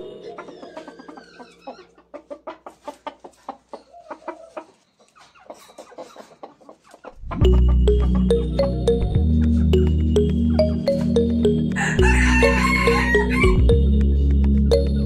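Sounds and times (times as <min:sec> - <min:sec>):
music: 0:00.0 - 0:01.2, 0:07.3 - 0:15.0
rooster clucking: 0:00.2 - 0:08.1.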